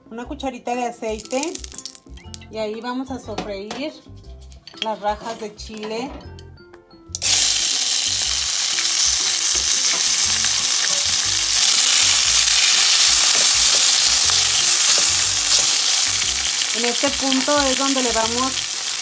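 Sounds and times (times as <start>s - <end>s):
chile strips sizzling in hot oil: 1.1s - 2.3s, 7.2s - 19.0s.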